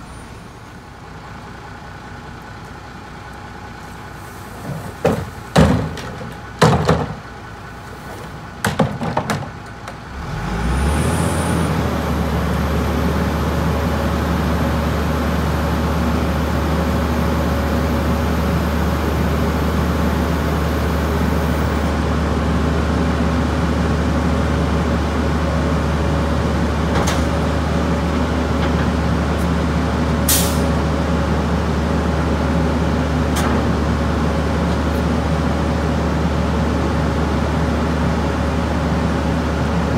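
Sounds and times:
trees knocking and rustling: 4.4 - 7.3, 8.0 - 10.0
garbage truck engine revving: 10.1 - 39.9.

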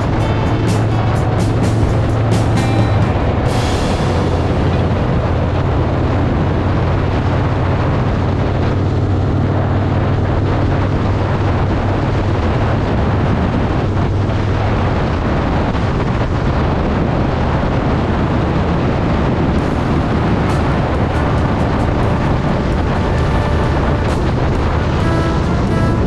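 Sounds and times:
motorcycle engine running: 0.0 - 14.3, 19.6 - 26.0
wind noise on microphone: 0.0 - 26.0.

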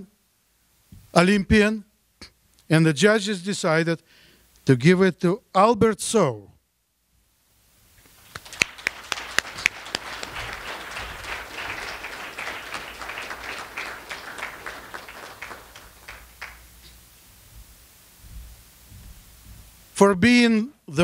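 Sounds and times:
audience applauding: 8.2 - 16.8.

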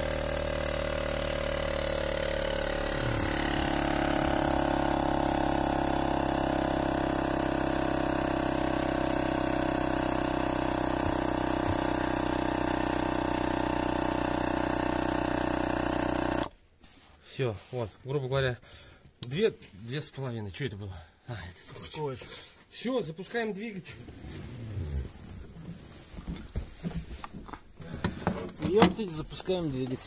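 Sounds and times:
electric air compressor running: 0.0 - 16.5.

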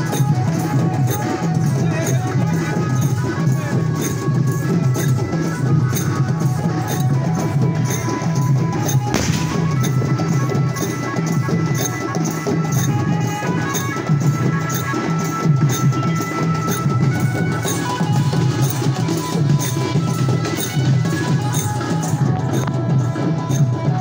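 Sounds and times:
deep drums beating: 3.2 - 10.8.

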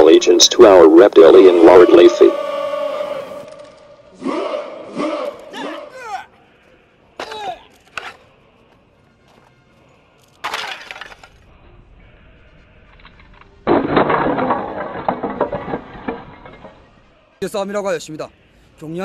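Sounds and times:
broken pieces falling: 10.4 - 11.4, 12.9 - 17.2
tiles cracking and shattering: 10.4 - 11.4, 13.1 - 17.2.

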